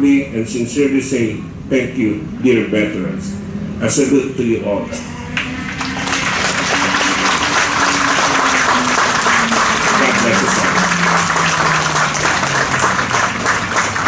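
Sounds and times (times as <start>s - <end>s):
audience applauding: 5.4s - 14.0s.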